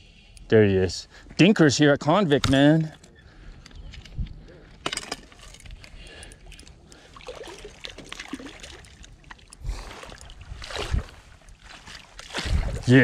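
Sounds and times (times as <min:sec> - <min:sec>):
water splashing and sloshing: 0:04.3 - 0:13.0
fish thrashing in water: 0:06.4 - 0:13.0.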